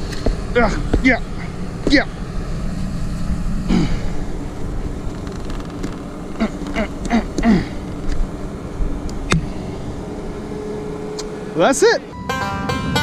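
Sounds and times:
machine squeals: 10.1s - 12.3s.

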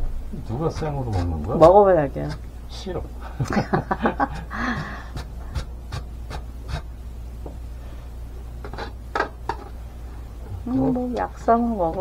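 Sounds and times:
potato scraping on mandoline slicer: 0.4s - 2.5s, 4.3s - 6.9s
breathy voice: 4.4s - 5.2s.

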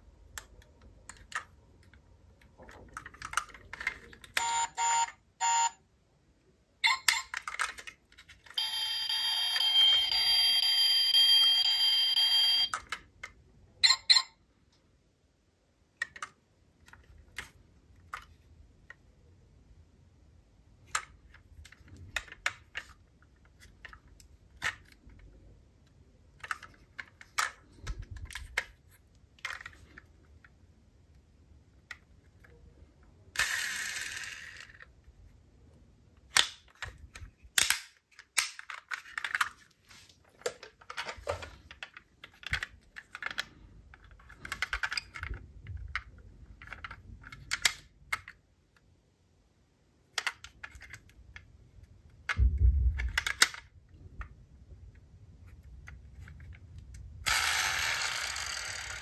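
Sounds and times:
toy cars clicking and clattering: 0.3s - 5.0s, 6.8s - 8.8s, 33.3s - 35.0s, 40.4s - 48.4s, 57.2s - 59.0s
thud: 52.4s - 53.1s.

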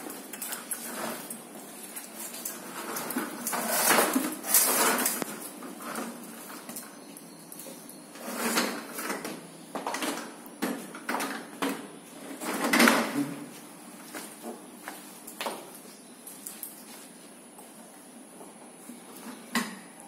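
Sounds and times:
plastic toy wheels rattling on tiles: 2.4s - 6.1s.

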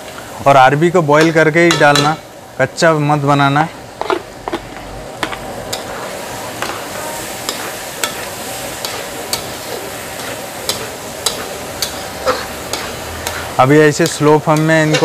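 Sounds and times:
food sizzling in a pan: 0.0s - 15.0s
spatula scraping pan: 4.0s - 15.0s
spatula striking pan clicks: 10.2s - 12.0s.

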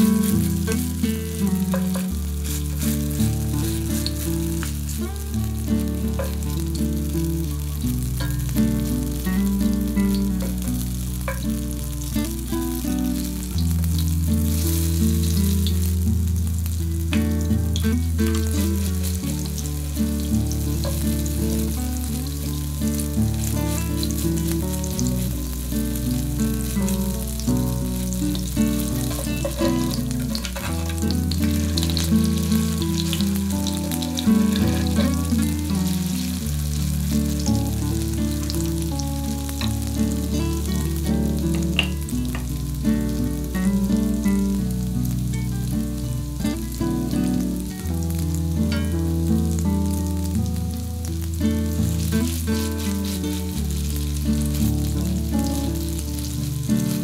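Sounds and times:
background music low notes: 0.0s - 57.0s
patties sizzling in oil: 0.0s - 57.0s
spatulas scraping a pan: 1.7s - 4.2s, 28.4s - 36.2s, 52.2s - 53.5s.

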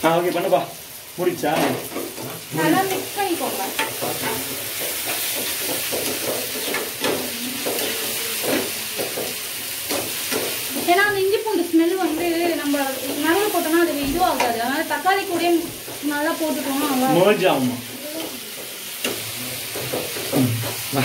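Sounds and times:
food sizzling in a pan: 0.0s - 21.0s
spatula scraping a pan: 1.5s - 11.1s.

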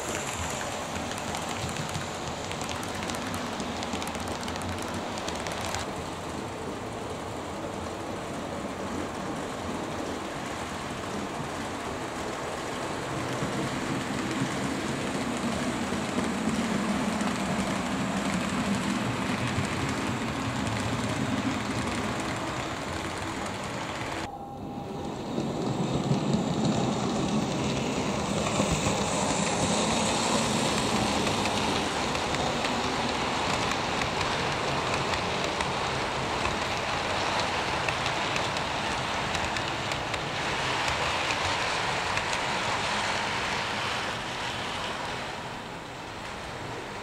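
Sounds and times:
model train wheels rattling on rail: 0.0s - 6.0s.

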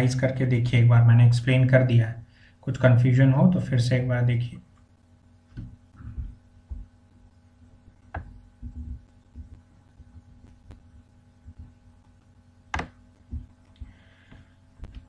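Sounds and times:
steady low hum: 0.0s - 15.0s
faint low thumps: 5.6s - 7.2s, 8.0s - 12.2s, 13.2s - 14.0s.

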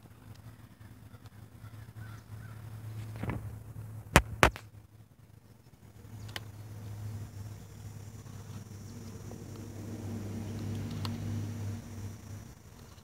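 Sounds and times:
rc car low hum: 5.4s - 13.0s.

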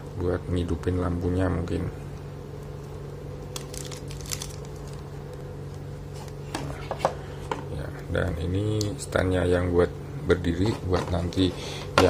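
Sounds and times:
steady low hum: 0.0s - 12.0s
plastic bag crinkling: 3.4s - 5.2s.

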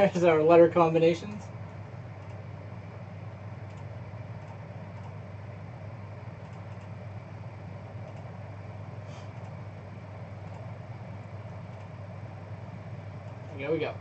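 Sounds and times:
low background hum: 0.0s - 14.0s
computer mouse clicks: 2.2s - 2.4s, 3.6s - 5.2s, 6.4s - 7.0s, 8.0s - 8.3s, 9.3s - 9.6s, 10.4s - 10.7s, 11.7s - 12.0s.

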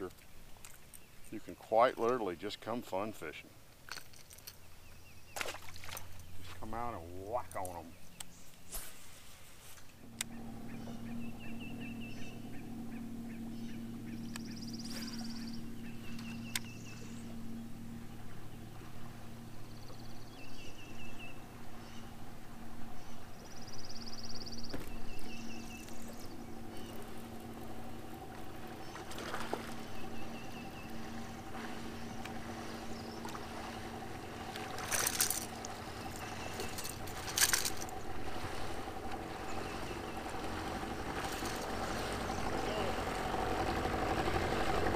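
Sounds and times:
steady low hum: 0.0s - 44.9s
high bird trills: 10.0s - 43.9s.

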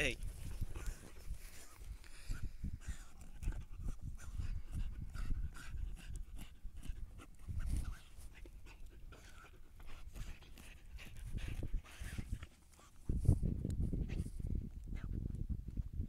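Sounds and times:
dog sniffing and panting: 0.2s - 15.4s
dog digging in soil: 2.9s - 14.2s.

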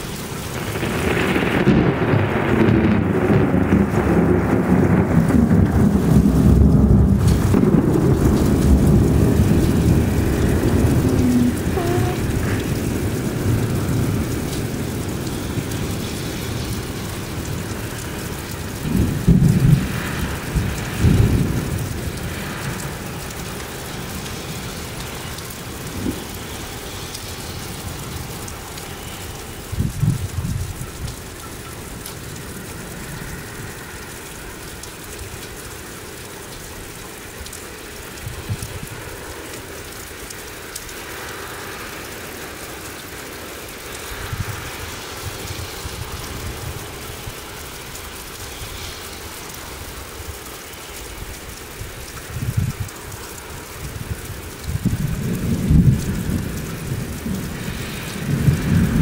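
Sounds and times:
heavy rain: 0.0s - 59.0s
thunder rolling: 0.3s - 23.9s, 54.1s - 59.0s
low rumbles: 5.8s - 13.7s.

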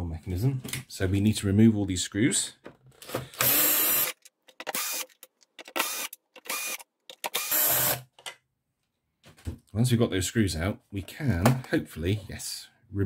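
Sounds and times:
power screwdriver motor whine: 3.4s - 5.1s, 5.8s - 8.0s.

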